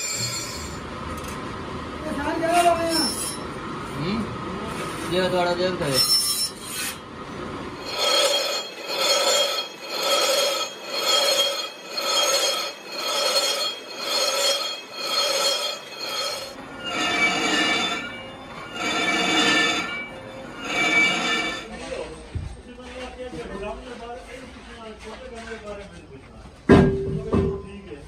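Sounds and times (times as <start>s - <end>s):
rasping strokes on ringing metal: 0.0s - 0.8s, 2.6s - 3.5s, 5.8s - 7.0s, 7.8s - 21.8s.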